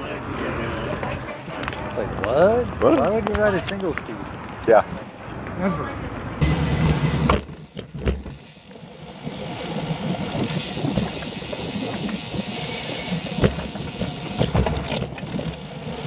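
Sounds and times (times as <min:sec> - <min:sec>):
tyre and road rumble: 0:00.0 - 0:16.0
bike rattling: 0:06.4 - 0:16.0
bike knocks over bumps: 0:06.6 - 0:08.5, 0:13.0 - 0:15.6.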